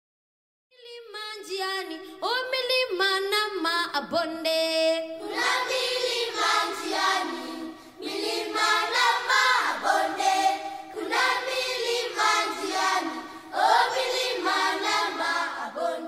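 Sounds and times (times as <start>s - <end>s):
choir singing: 5.2s - 16.0s.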